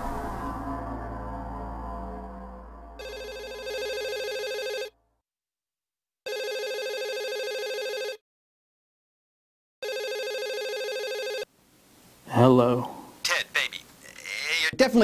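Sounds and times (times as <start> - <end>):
telephone ringing: 3.0 - 5.0, 6.3 - 8.2, 9.8 - 11.5.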